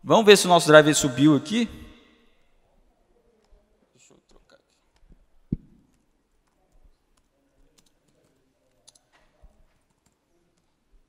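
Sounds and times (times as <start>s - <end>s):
laptop keyboard typing: 5.9s - 9.1s, 9.7s - 10.8s.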